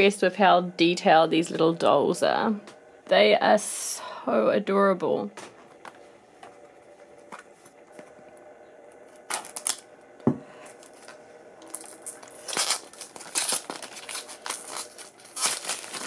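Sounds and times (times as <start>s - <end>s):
cellophane wrap crinkling: 9.1s - 9.9s, 10.5s - 16.0s.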